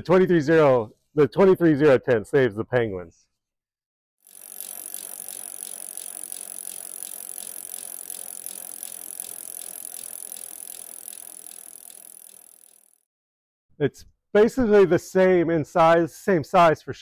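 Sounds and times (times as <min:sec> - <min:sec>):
rapid ratchet-like clicking: 0:04.2 - 0:13.0.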